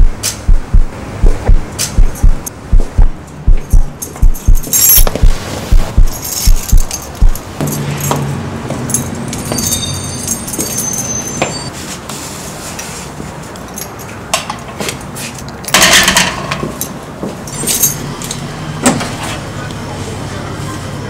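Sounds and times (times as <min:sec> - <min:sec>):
keys jingling: 0:03.2 - 0:11.7, 0:17.5 - 0:18.3.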